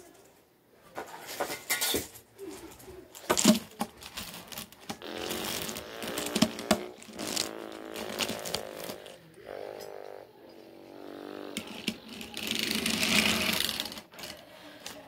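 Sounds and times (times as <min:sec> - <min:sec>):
plastic blocks clicking and clattering: 0:01.3 - 0:09.0, 0:11.6 - 0:15.0.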